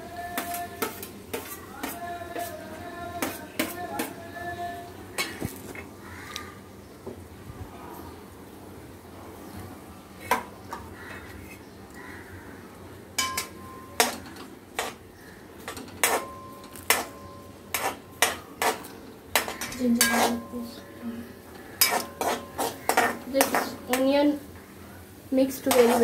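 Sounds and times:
spoon clanking against a wok: 0.3 - 2.5, 13.2 - 15.0, 15.6 - 20.9, 21.8 - 24.2.

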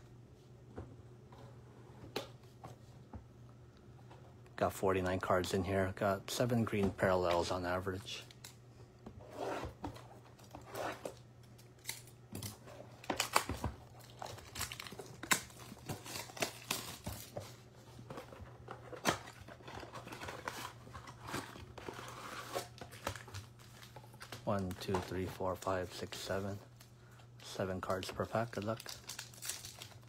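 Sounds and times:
plastic shrink wrap tearing: 13.2 - 17.1, 27.9 - 30.0.

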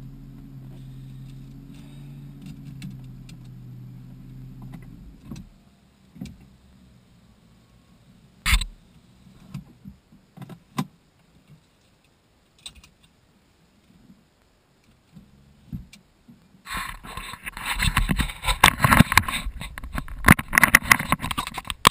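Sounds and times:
car engine hum: 0.0 - 10.1
rustling scraping noise: 16.6 - 21.9
clicks and knocks: 17.1 - 21.9.

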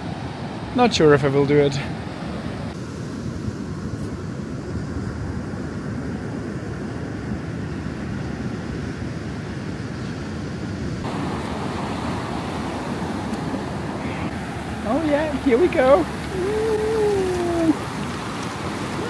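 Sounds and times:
ocean surf hissing: 11.0 - 19.0
wind noise on microphone: 16.0 - 19.0.

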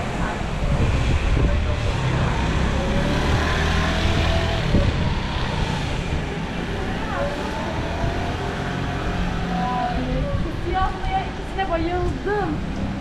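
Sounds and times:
indistinct voices: 0.0 - 13.0
passing traffic rumble: 0.0 - 13.0.

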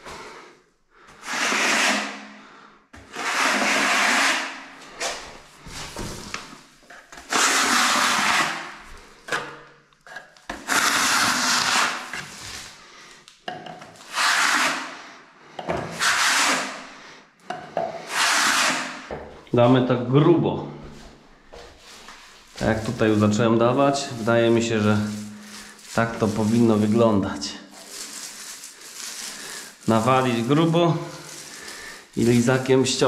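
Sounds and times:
plaster scraping on wall: 1.2 - 2.2, 3.0 - 8.8, 10.1 - 12.8, 13.9 - 15.0, 15.8 - 16.8, 18.0 - 19.1, 22.0 - 27.0.

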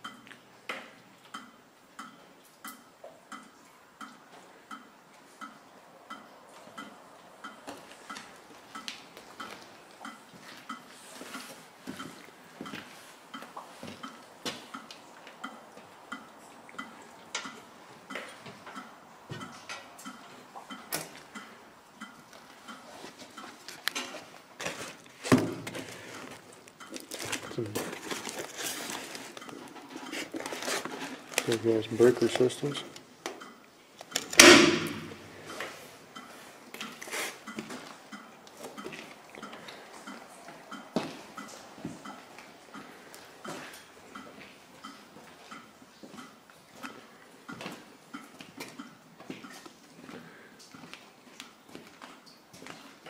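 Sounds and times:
loud metal clank: 34.4 - 35.2.

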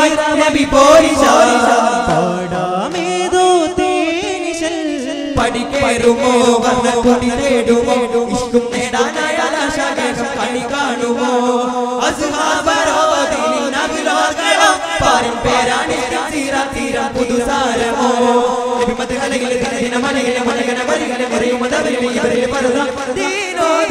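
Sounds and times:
men chanting a song: 0.0 - 23.9.

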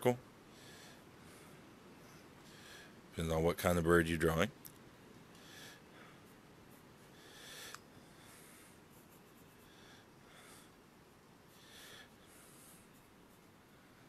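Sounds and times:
pencil scratching on paper: 8.9 - 9.8.

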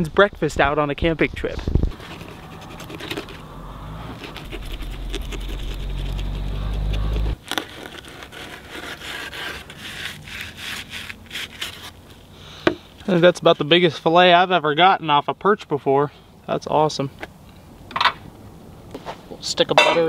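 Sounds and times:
steady low hum: 1.8 - 7.4
knife sawing through fish: 1.9 - 3.4, 4.1 - 12.0.

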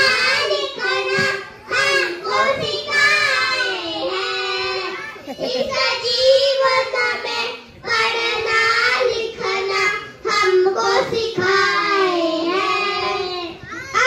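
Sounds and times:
children singing in unison: 0.0 - 14.0.

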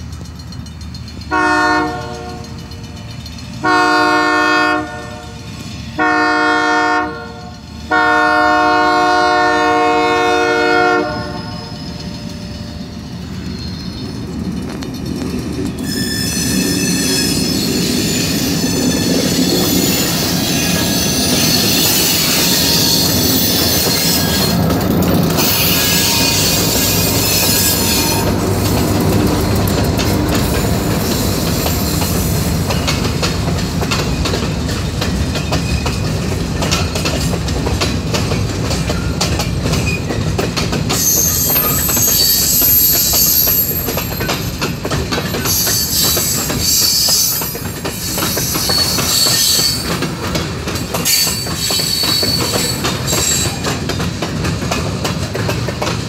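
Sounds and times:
train rumbling past: 0.0 - 56.0
train horn blasts: 1.3 - 2.6, 3.6 - 5.4, 6.0 - 12.1, 25.4 - 28.6
metallic wheel squeal: 11.3 - 14.9, 15.6 - 29.3, 30.3 - 32.9, 40.9 - 50.1, 50.9 - 53.8.

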